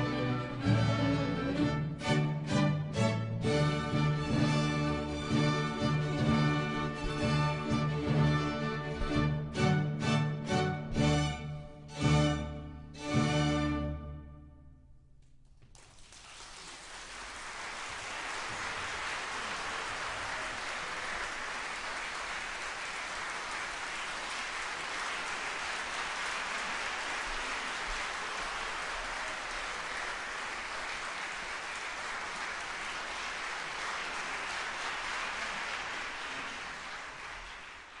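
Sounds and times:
audience applauding: 15.6 - 38.0.

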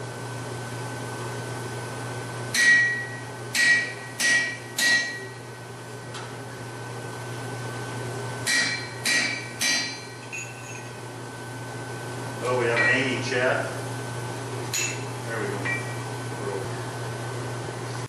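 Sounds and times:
hammer striking hot steel on anvil: 2.5 - 5.4, 8.4 - 10.6, 12.7 - 13.2, 14.7 - 16.0.

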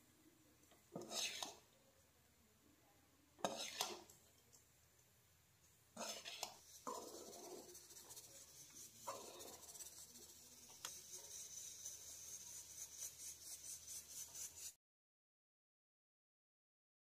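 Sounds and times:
metal spatula scraping rice: 0.9 - 1.7, 3.4 - 4.1, 6.0 - 14.8
steady hiss: 6.6 - 14.8.

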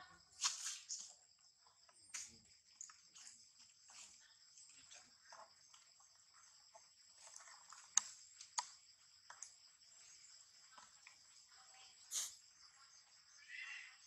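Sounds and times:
insects droning: 0.0 - 14.0
brief rustle: 0.4 - 1.1, 12.1 - 12.4.

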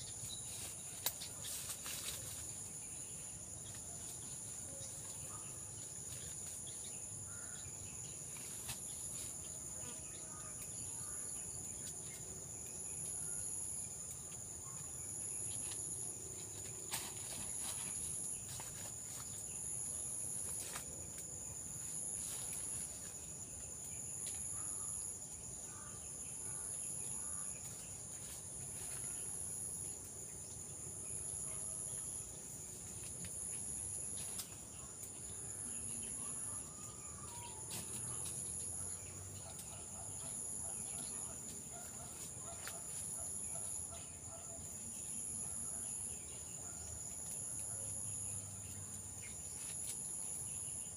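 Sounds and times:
insects trilling: 0.0 - 50.9.

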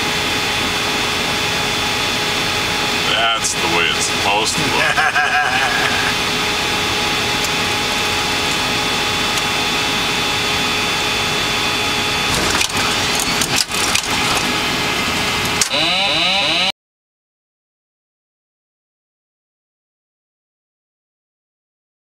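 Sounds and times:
cockpit noise: 3.0 - 6.4.

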